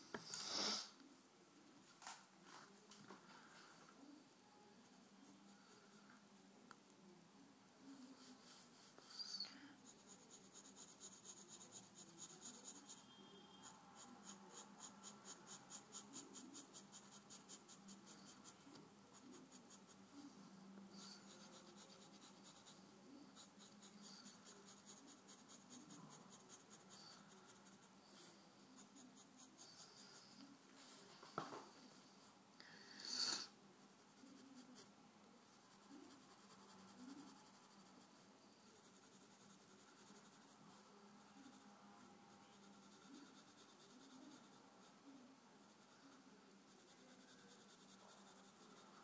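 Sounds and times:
pencil scratching on paper: 7.9s - 20.3s, 20.9s - 30.5s, 33.8s - 34.9s, 35.5s - 41.7s, 42.3s - 49.0s.

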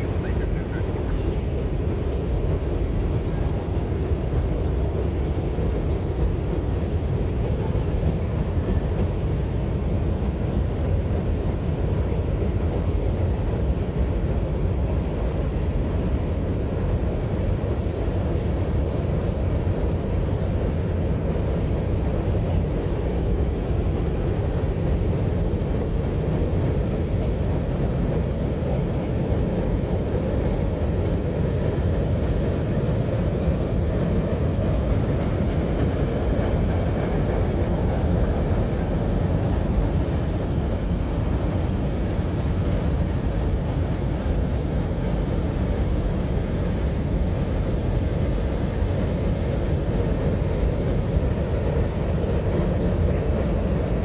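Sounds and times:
freight train rumbling over bridge: 0.0s - 54.0s.

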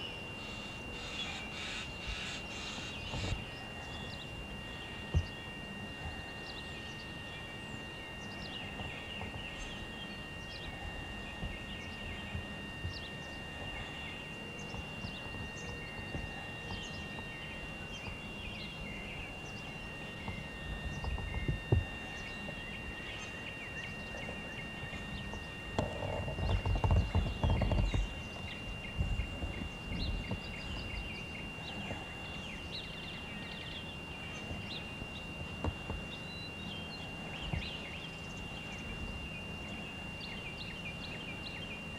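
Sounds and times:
birds chirping: 0.0s - 41.9s
camcorder high whine: 0.0s - 41.9s
low rumble on microphone: 8.2s - 33.4s.

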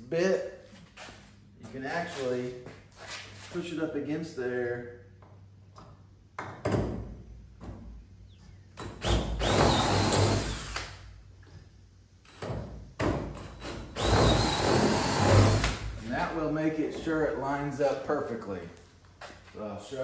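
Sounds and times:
cordless drill drilling through metal: 9.0s - 11.0s, 13.4s - 15.8s.

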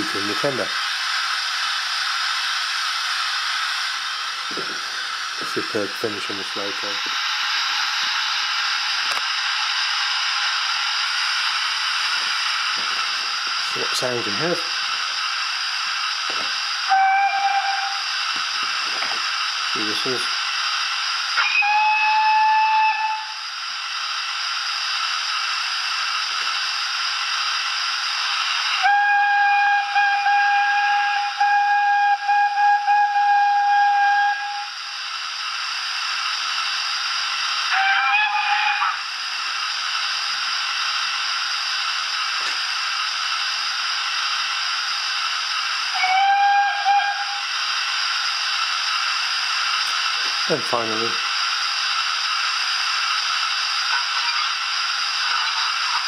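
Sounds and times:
steam hiss: 0.0s - 56.0s
locomotive whistle blasts: 16.8s - 18.2s, 21.4s - 23.5s, 28.7s - 34.8s, 37.7s - 39.0s, 45.9s - 47.5s.

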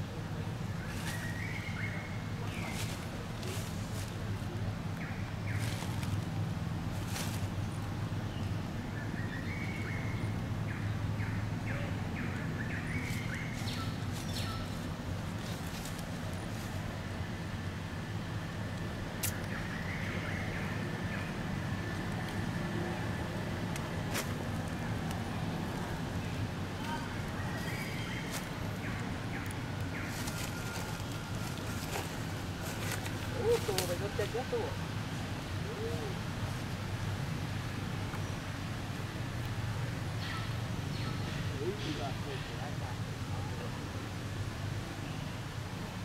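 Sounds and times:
bird chirping: 7.6s - 15.6s.

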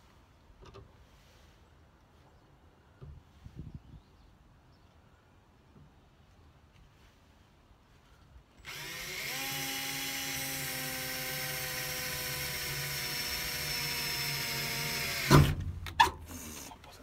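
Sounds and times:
cordless drill boring: 8.6s - 15.6s.

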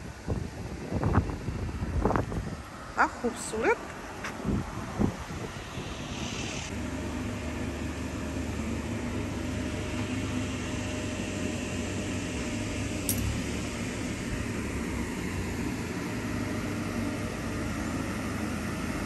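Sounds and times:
machine droning: 5.3s - 19.0s.

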